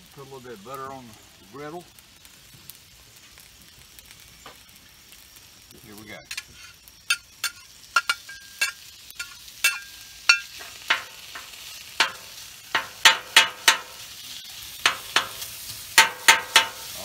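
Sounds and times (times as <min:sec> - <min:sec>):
frying sizzle: 0:00.0 - 0:17.0
metal spatula clacking on griddle: 0:06.3 - 0:14.0, 0:14.8 - 0:17.0.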